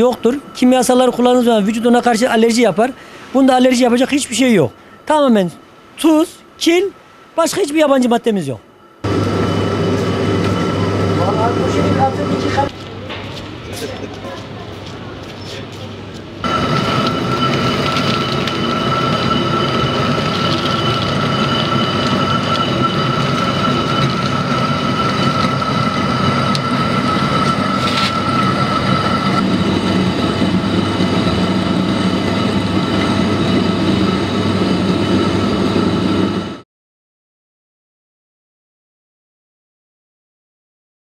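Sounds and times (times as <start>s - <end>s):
high-pitched motor whine: 0.0s - 4.8s, 9.0s - 12.8s, 16.4s - 36.6s
millstone grinding rumble: 16.4s - 35.3s.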